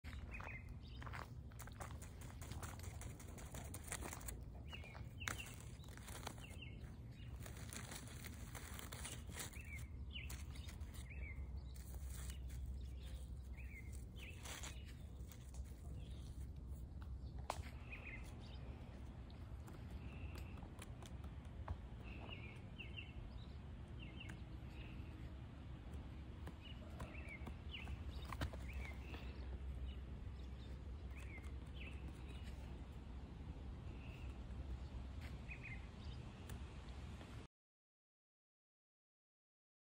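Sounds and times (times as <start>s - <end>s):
small birds chirping: 0.1s - 37.3s
dry leaves crackling: 1.0s - 16.8s.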